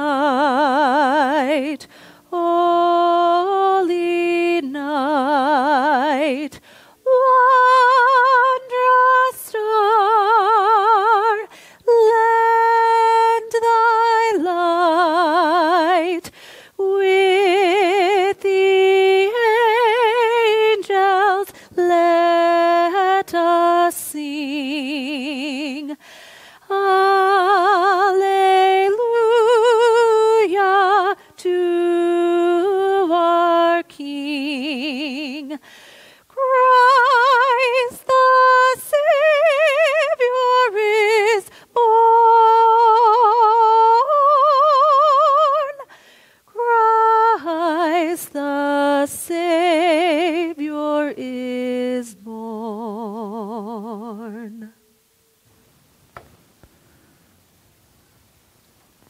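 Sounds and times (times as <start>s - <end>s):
woman singing unaccompanied: 0.0s - 26.0s, 26.6s - 35.6s, 36.3s - 45.9s, 46.5s - 54.9s.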